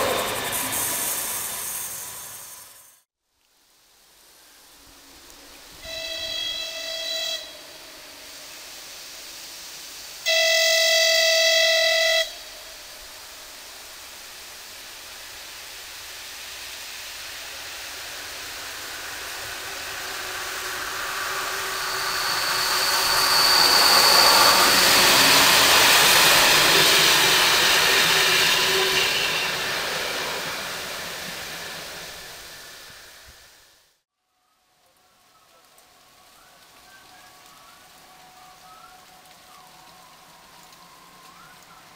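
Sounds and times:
train passing: 0.0 - 3.1, 4.8 - 33.9
train horn blast: 5.8 - 8.0, 10.2 - 12.8.

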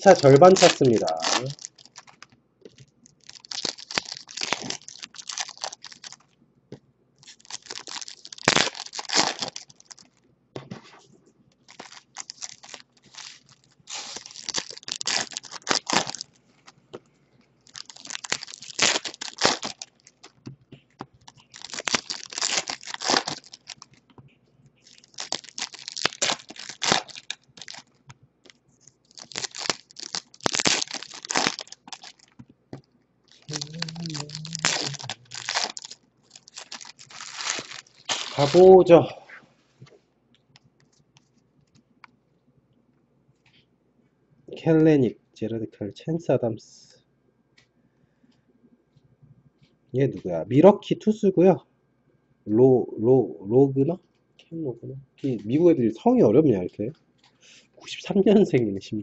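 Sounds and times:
foil wrappers crinkling and tearing: 0.0 - 6.3, 7.2 - 10.2, 11.6 - 16.8, 17.6 - 20.4, 21.2 - 24.0, 24.8 - 32.4, 33.3 - 38.7.

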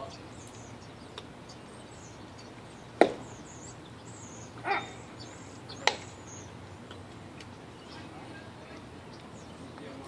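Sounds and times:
baseball smacking into mitt: 3.0 - 3.3.

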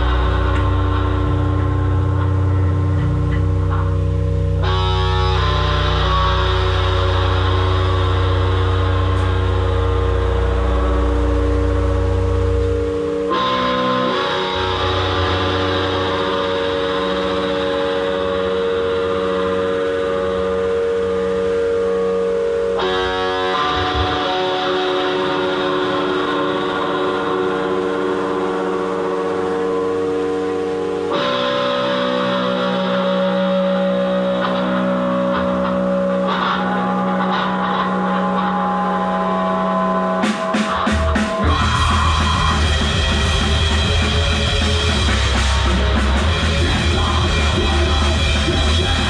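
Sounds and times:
deep bass tone: 0.0 - 16.4, 41.4 - 49.0
amplified guitars droning chords: 0.0 - 49.0.

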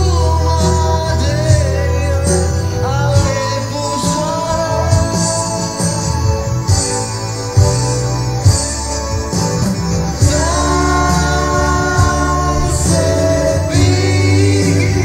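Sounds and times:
steady bass line: 0.0 - 15.0
regular beat: 8.5 - 15.0.

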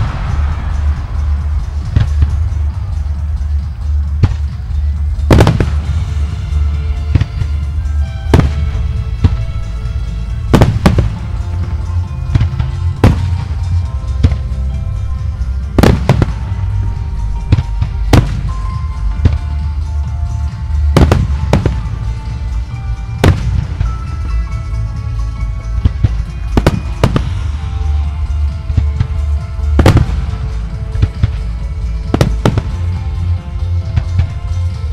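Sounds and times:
firework bangs: 0.0 - 4.6, 5.2 - 14.6, 15.2 - 19.5, 20.8 - 22.2, 25.9 - 27.7, 28.5 - 33.1
music: 0.0 - 34.9
steady low rumble: 0.0 - 34.9.

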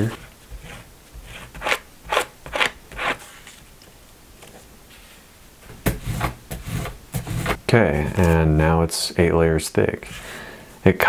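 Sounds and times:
paper scraping and tapping on mat: 5.8 - 8.4.

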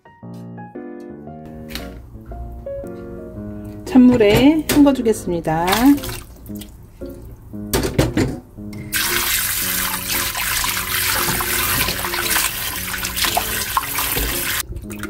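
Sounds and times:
soft background music: 0.0 - 15.0
tap water running into bowl: 8.9 - 15.0.

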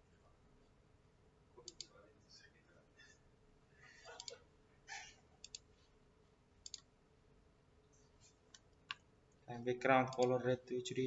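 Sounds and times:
computer mouse clicks: 1.6 - 1.9, 4.2 - 4.4, 5.4 - 5.7, 6.6 - 6.9, 10.1 - 10.4.

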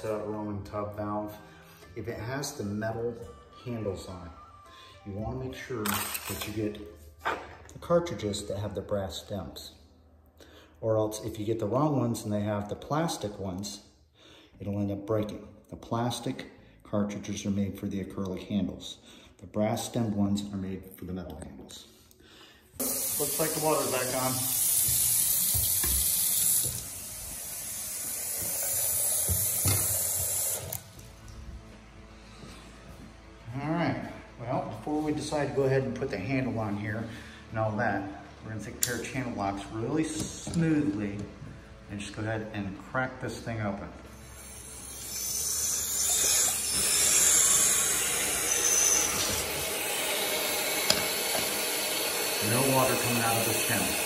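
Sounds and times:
faucet running into sink: 22.8 - 30.8, 44.4 - 54.0.

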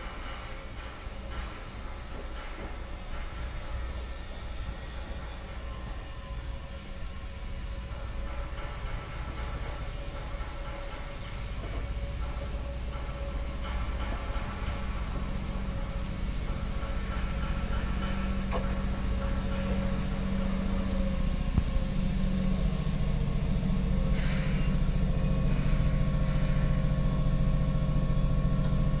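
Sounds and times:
electric train humming: 0.0 - 29.0
short hiss: 24.1 - 24.8.

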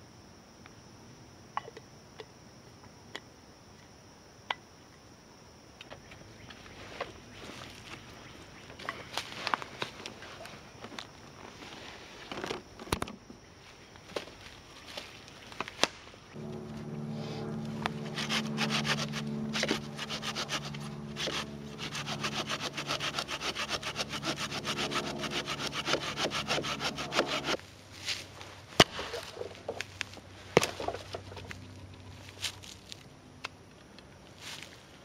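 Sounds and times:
hand saw cutting log: 18.0 - 27.6.

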